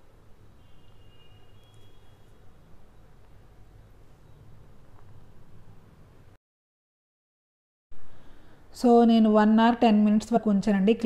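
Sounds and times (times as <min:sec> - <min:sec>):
faint thin high tones: 0:00.6 - 0:02.4.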